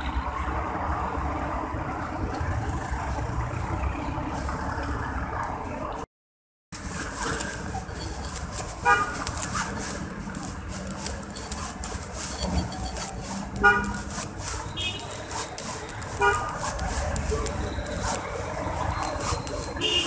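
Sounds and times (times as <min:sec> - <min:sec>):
traffic: 0:00.0 - 0:06.1, 0:06.7 - 0:20.0
car horn toots: 0:08.8 - 0:09.2, 0:13.6 - 0:14.0, 0:14.7 - 0:15.2, 0:16.2 - 0:16.5, 0:19.8 - 0:20.0.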